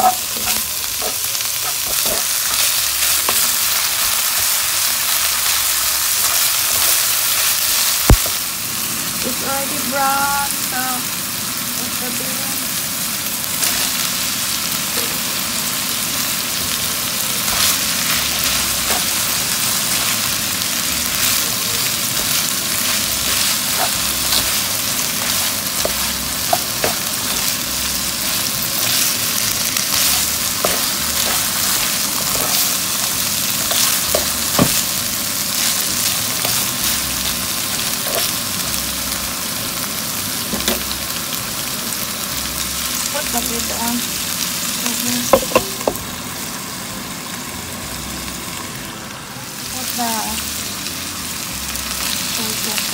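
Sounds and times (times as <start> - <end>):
food sizzling in a pan: 0.0 - 52.9.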